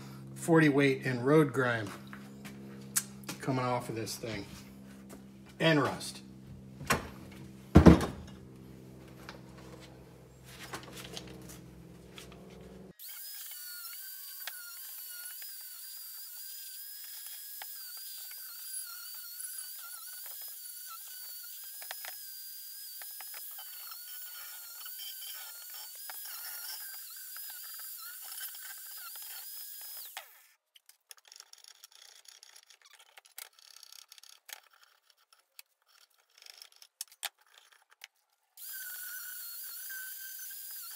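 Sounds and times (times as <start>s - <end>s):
angle grinder on steel: 12.9s - 30.5s, 38.6s - 40.9s.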